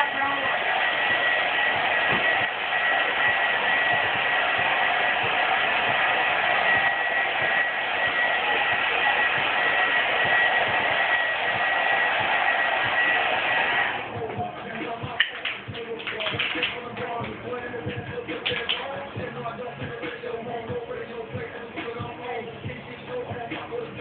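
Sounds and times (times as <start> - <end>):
hair dryer running: 0.0 - 24.0.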